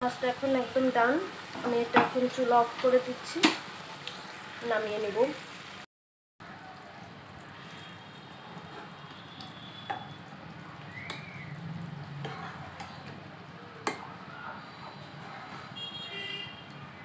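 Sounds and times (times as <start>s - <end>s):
spatula scraping a pan: 8.4s - 9.2s, 12.1s - 13.2s, 14.6s - 15.9s.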